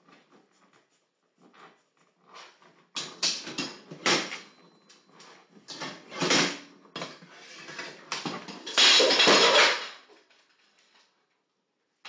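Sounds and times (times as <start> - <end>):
dog scraping and knocking pots: 1.4 - 10.0.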